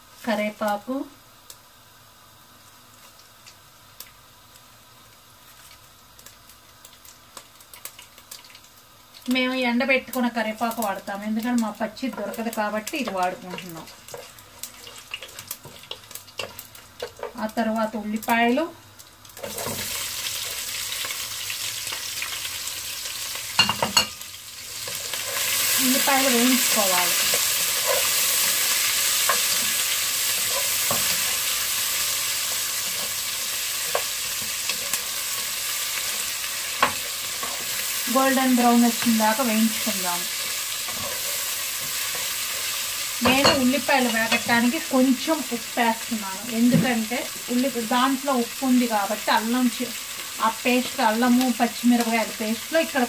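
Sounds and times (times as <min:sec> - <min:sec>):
oil sizzling: 0:00.0 - 0:53.0
sharp popping in hot oil: 0:05.7 - 0:09.4, 0:10.1 - 0:17.6, 0:19.0 - 0:38.0, 0:40.2 - 0:44.7.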